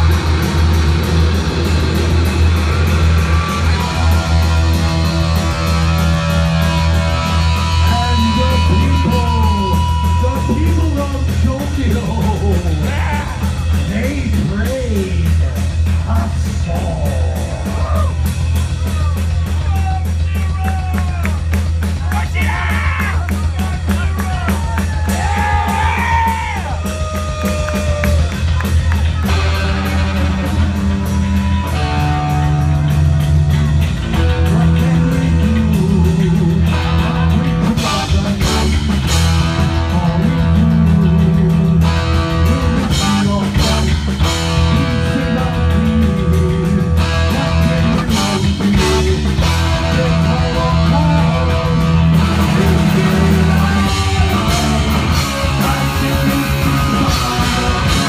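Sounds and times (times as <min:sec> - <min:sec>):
bass guitar: 0:00.0 - 0:58.0
distorted electric guitar: 0:00.0 - 0:58.0
drum kit: 0:00.0 - 0:58.0
lead vocal singing: 0:34.3 - 0:58.0.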